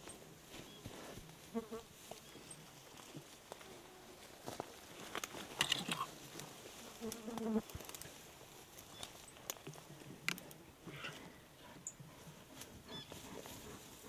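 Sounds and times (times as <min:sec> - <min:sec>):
leaves and twigs rustling: 0:01.9 - 0:10.6.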